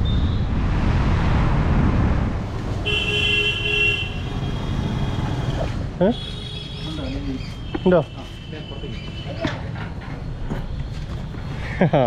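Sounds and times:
street traffic rumble: 0:00.0 - 0:12.0
vehicle horn honking: 0:02.8 - 0:05.4.

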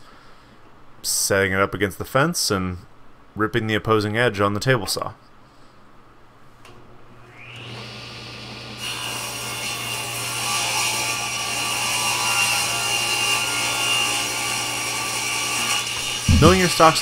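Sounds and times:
table saw motor hum: 0:07.2 - 0:09.4
saw blade cutting wood: 0:08.8 - 0:17.0.

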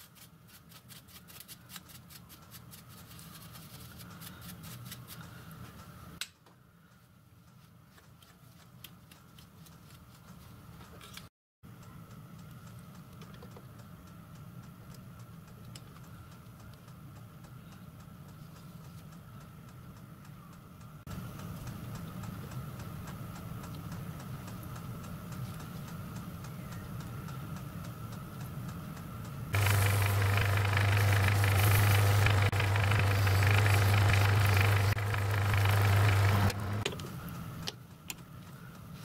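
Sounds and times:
fuel pump clicking: 0:29.6 - 0:37.0
low hum: 0:29.6 - 0:37.4.

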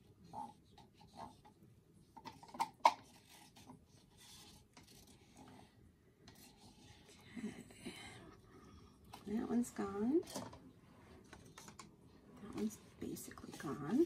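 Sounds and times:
stir stick scraping a cup: 0:03.0 - 0:07.2, 0:12.6 - 0:14.0.

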